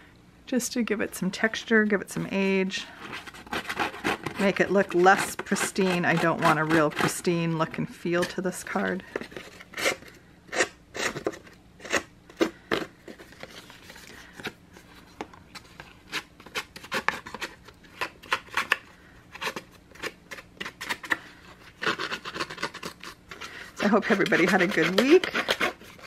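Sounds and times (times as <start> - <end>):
scissor blades scraping cardstock: 3.0 - 7.3, 15.7 - 26.0.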